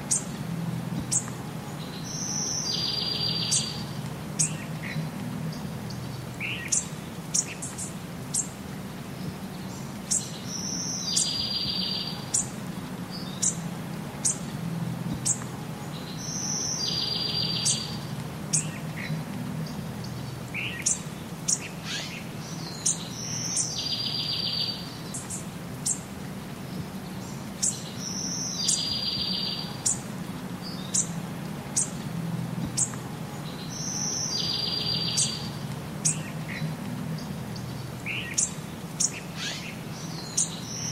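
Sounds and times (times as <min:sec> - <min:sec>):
steady low hum: 0:00.0 - 0:11.2, 0:12.1 - 0:23.9, 0:29.6 - 0:40.9
small birds chirping: 0:00.0 - 0:40.9
buzzy bird trill: 0:02.0 - 0:05.0, 0:16.1 - 0:26.0, 0:33.5 - 0:40.9.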